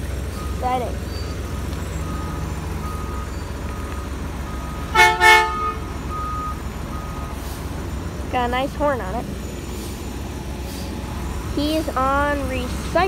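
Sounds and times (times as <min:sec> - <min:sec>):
truck engine idling: 0:00.0 - 0:13.0
reversing alarm beeping: 0:00.3 - 0:07.5
truck horn blasts: 0:04.9 - 0:06.5.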